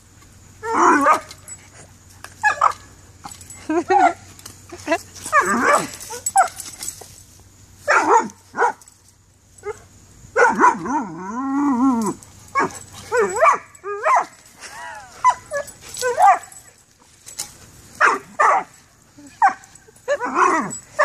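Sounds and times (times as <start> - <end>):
dog barking and yipping: 0.7 - 1.6, 2.4 - 2.9, 5.2 - 7.0, 7.8 - 8.9, 10.4 - 11.0, 12.0 - 16.8, 17.9 - 21.0.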